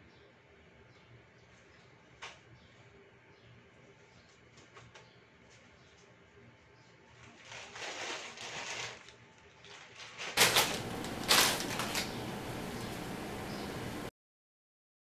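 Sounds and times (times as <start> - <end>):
plastic bag rustling: 7.1 - 13.2.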